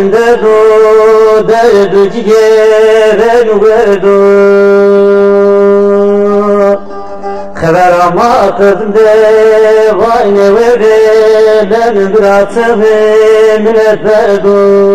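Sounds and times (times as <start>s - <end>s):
man singing: 0.0s - 14.9s
instrumental accompaniment: 5.8s - 9.0s.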